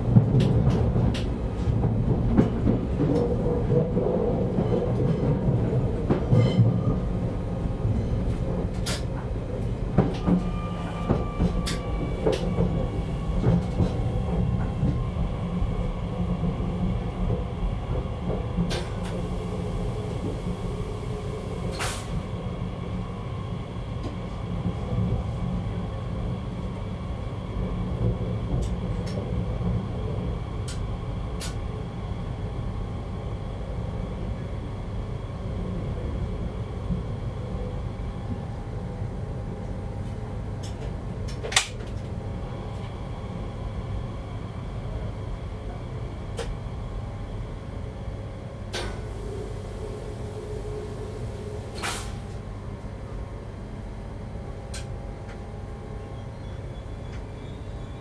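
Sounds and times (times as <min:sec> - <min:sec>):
train rumbling over switches: 0:00.0 - 0:58.0
train wheel clicks and knocks: 0:00.1 - 0:04.1.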